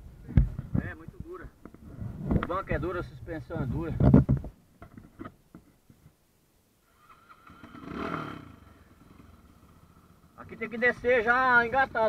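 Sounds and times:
motorcycle engine revving: 0:06.8 - 0:12.0.

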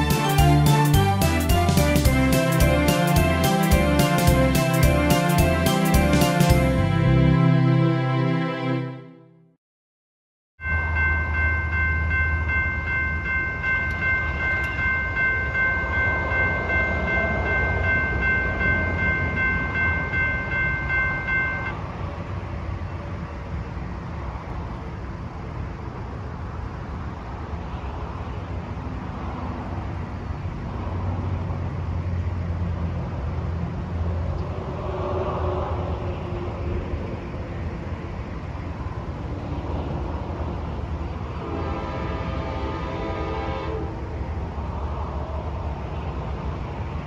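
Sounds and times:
locomotive air horn: 0:00.0 - 0:09.2, 0:41.3 - 0:44.2.

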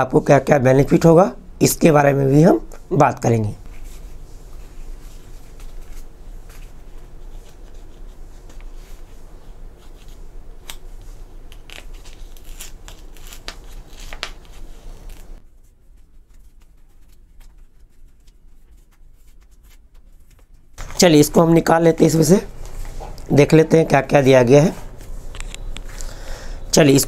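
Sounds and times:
envelope being torn open: 0:10.6 - 0:15.4.

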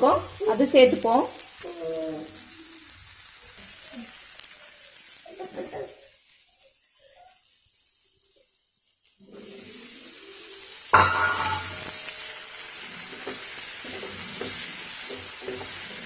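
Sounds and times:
food sizzling in oil: 0:00.0 - 0:16.0
spatula scraping a pan: 0:09.0 - 0:16.0.

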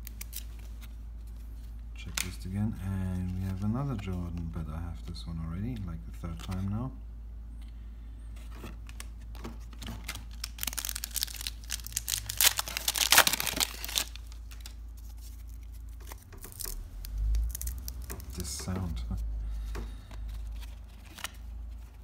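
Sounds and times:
wrapper tearing and crinkling: 0:00.0 - 0:00.8, 0:10.0 - 0:18.5.

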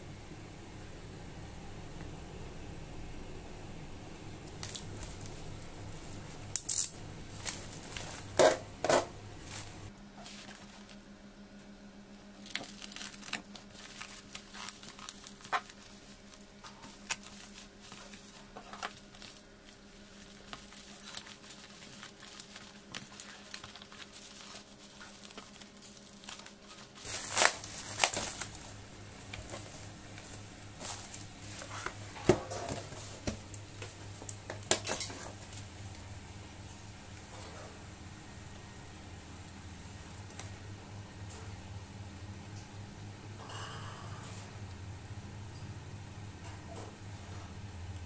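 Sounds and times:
plastic wrap crinkling and tearing: 0:04.5 - 0:05.4, 0:06.6 - 0:08.5, 0:12.3 - 0:32.0.

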